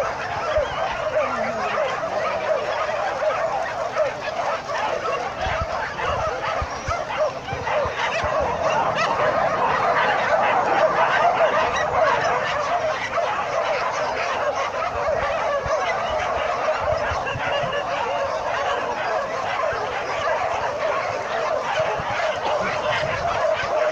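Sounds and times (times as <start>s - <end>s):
pack of dogs yelping and barking: 0.0s - 23.9s.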